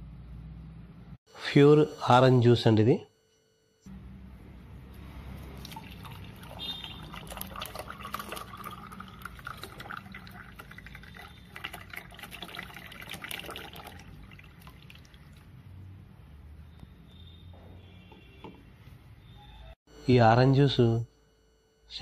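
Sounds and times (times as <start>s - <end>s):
juice pouring into a glass: 5.5s - 15.6s
small drips and splashes: 5.6s - 15.6s.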